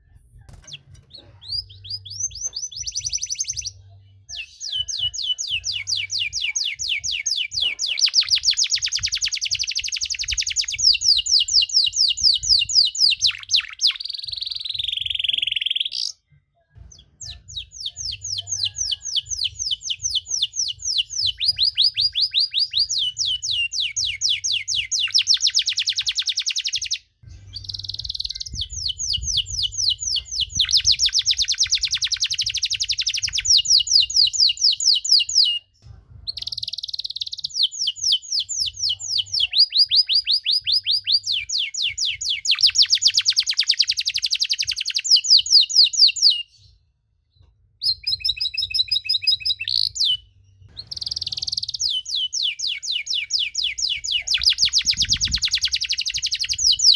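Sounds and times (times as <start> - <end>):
canary singing trills: 0.5 - 16.2, 16.8 - 46.8, 47.8 - 56.9.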